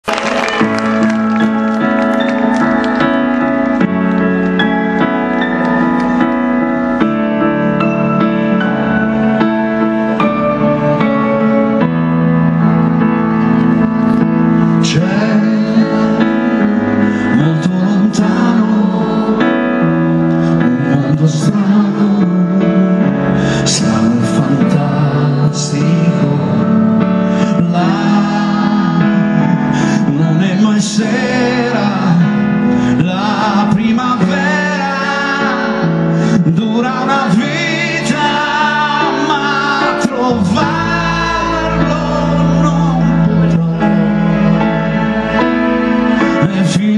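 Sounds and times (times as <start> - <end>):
keyboard-led band playing: 0.0 - 46.9
man singing: 14.7 - 46.9.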